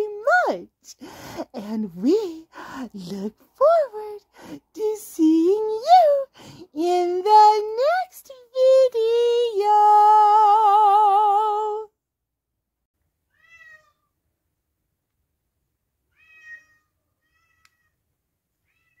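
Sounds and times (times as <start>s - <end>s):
cat meowing: 13.3s - 14.1s, 16.1s - 18.0s, 18.6s - 19.0s.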